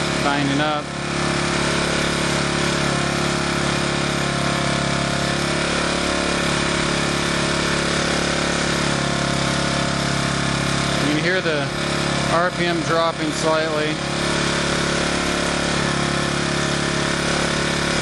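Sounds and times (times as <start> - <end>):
portable generator engine running: 0.0 - 18.0.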